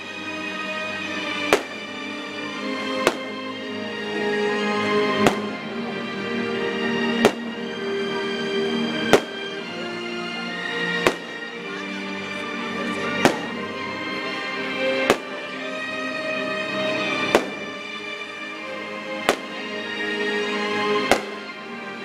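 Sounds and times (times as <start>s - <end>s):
music playing: 0.0s - 22.0s
fireworks bursting with bangs: 1.4s - 2.3s, 3.0s - 3.4s, 5.1s - 5.6s, 7.2s - 7.6s, 9.0s - 9.6s, 10.9s - 11.6s, 13.2s - 13.6s, 15.0s - 15.5s, 17.3s - 18.0s, 19.2s - 19.7s, 21.0s - 21.6s.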